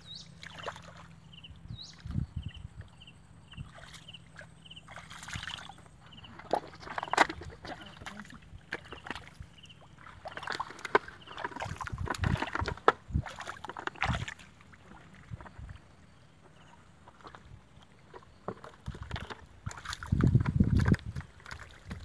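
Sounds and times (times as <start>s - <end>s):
muddy water splashing: 0.0s - 22.0s
hands squelching through mud: 0.3s - 1.2s, 3.6s - 15.4s, 19.6s - 22.0s.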